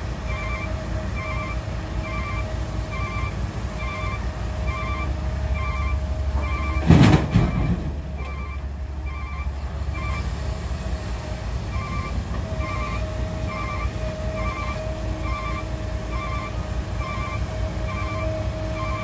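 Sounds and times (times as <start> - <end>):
diesel engine running: 0.0 - 19.0
high beeping chirp: 0.3 - 10.3, 11.7 - 19.0
rocks crashing into truck bed: 6.8 - 8.0.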